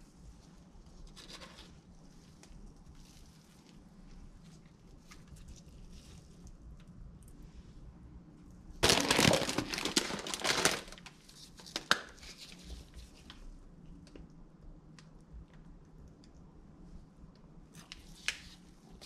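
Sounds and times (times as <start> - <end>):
plastic bag crinkling: 8.8 - 12.6.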